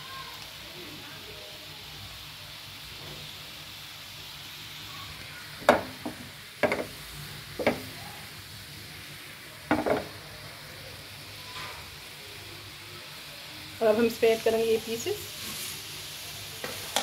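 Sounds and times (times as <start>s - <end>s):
syrup boiling with bubbling hiss: 0.0s - 17.0s
spoon knocking and scraping pan: 5.6s - 7.0s, 7.6s - 7.9s, 9.7s - 10.1s, 16.6s - 17.0s.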